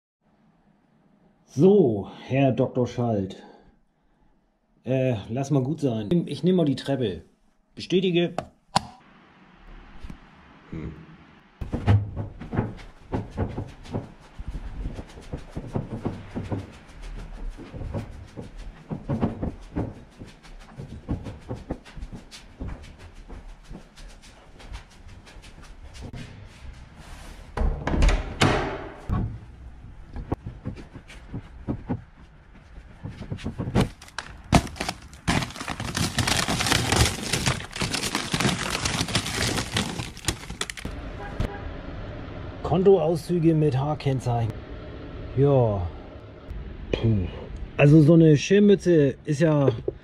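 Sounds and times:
footsteps on hard stairs: 0:11.6 - 0:26.2, 0:30.2 - 0:40.9
rustling and crackling of papers: 0:30.4 - 0:40.9.

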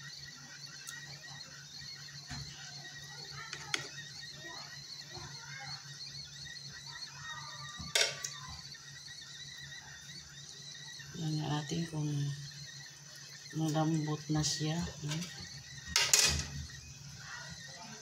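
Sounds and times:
ladle scraping pot: 0:11.1 - 0:16.8.

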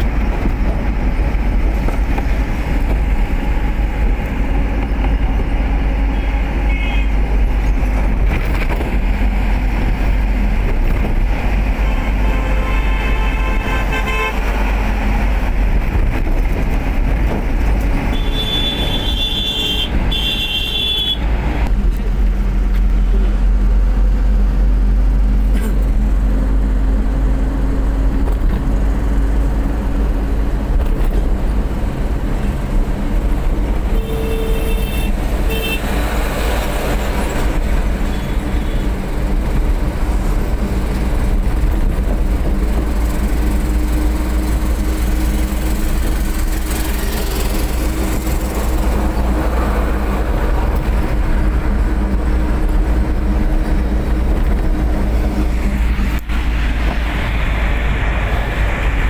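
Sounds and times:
car engine and tyre rumble: 0:00.0 - 0:59.0
vehicle horn toots: 0:06.1 - 0:07.2, 0:11.8 - 0:14.5, 0:18.1 - 0:21.3, 0:33.9 - 0:35.9, 0:38.1 - 0:38.9.

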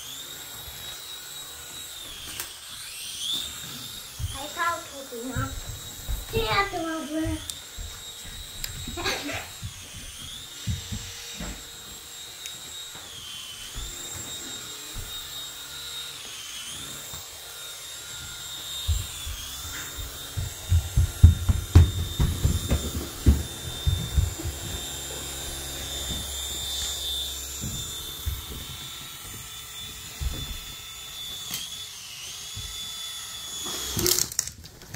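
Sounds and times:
toy rotor motors whining: 0:00.0 - 0:34.9
toy thumping onto rug: 0:20.4 - 0:24.5.

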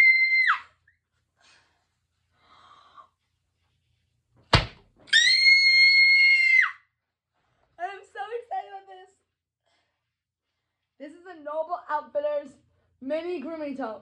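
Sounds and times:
sharp thunk: 0:04.5 - 0:04.9.

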